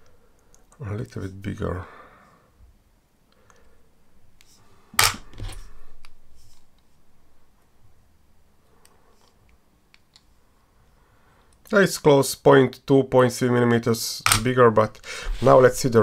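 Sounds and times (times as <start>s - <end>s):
light scraping: 15.1s - 16.0s.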